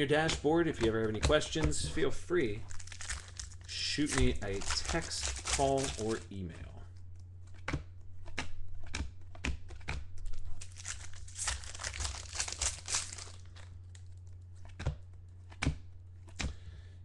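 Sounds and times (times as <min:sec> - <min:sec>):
steady low hum: 0:00.0 - 0:17.0
foil wrapper tearing and crinkling: 0:00.1 - 0:06.3, 0:10.2 - 0:14.8
cards clicking: 0:02.7 - 0:06.4, 0:07.2 - 0:16.6.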